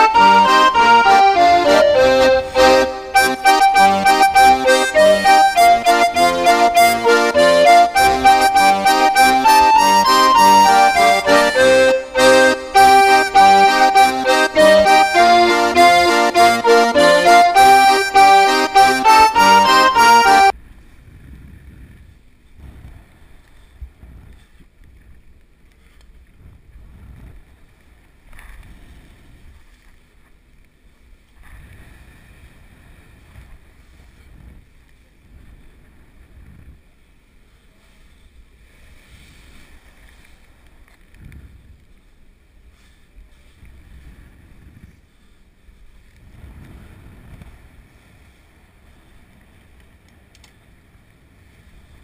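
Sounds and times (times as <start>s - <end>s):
wind gusting over microphone: 45.8s - 52.0s.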